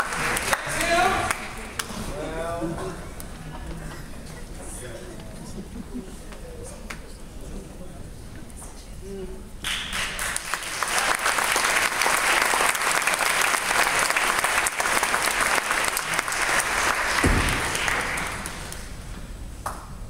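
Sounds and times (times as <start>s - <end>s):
audience applauding: 0.0s - 1.9s, 9.6s - 19.1s
low thump: 17.2s - 17.8s.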